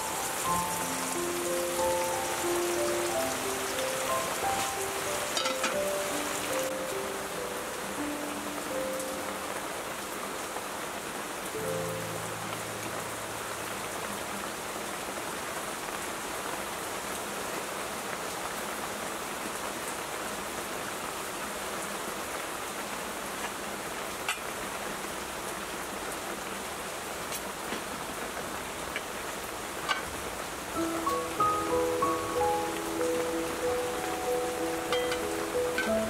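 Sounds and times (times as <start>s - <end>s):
steady rain falling: 0.0s - 36.0s
dishes set down on a table: 5.4s - 5.8s.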